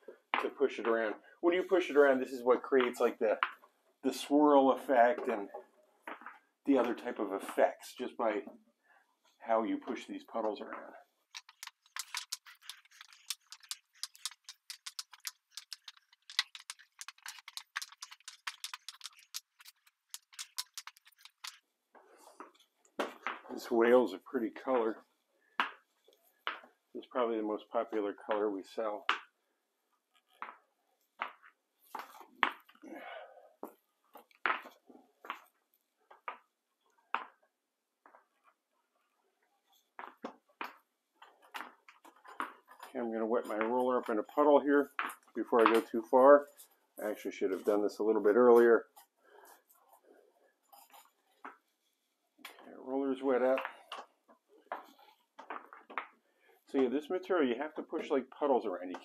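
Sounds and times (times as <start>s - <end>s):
spiked shoes stepping through coating: 11.3s - 21.6s
squeegee pushing wet epoxy: 11.3s - 21.6s.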